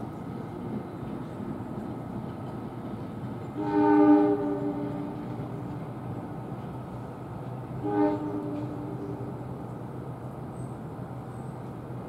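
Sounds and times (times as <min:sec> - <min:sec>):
train rumble: 0:00.0 - 0:12.0
train air horn blast: 0:03.6 - 0:05.3, 0:07.8 - 0:09.4.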